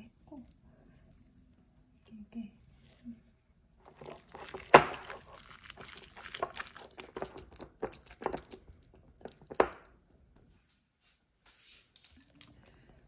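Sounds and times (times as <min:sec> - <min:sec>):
hands squishing wet meat: 0:03.7 - 0:10.6.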